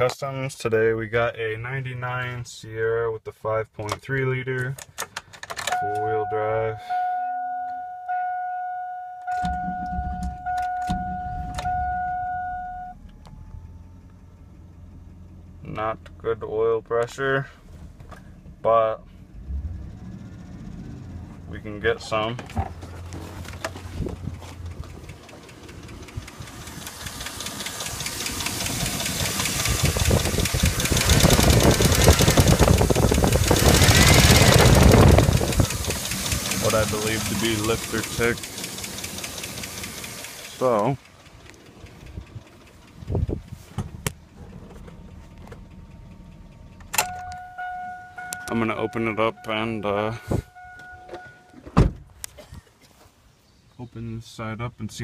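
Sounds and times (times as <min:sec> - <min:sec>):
dashboard warning chime: 0:05.7 - 0:14.1, 0:47.0 - 0:51.6
engine idling: 0:09.4 - 0:51.3
engine cranking: 0:17.7 - 0:51.6
rapid valvetrain ticking: 0:24.2 - 0:43.6.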